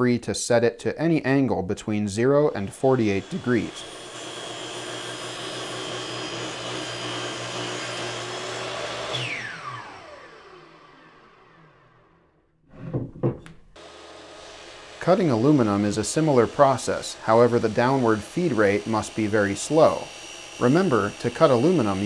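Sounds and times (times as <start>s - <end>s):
miter saw whining: 2.6s - 12.4s, 13.8s - 22.0s
saw blade spinning down: 2.6s - 12.4s, 13.8s - 22.0s
short knock: 12.8s - 13.6s.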